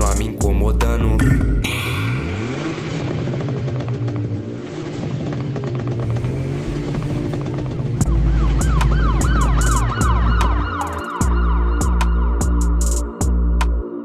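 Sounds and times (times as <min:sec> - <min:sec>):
trap beat: 0:00.0 - 0:02.6, 0:08.0 - 0:13.8
yelping siren sound: 0:08.0 - 0:12.8.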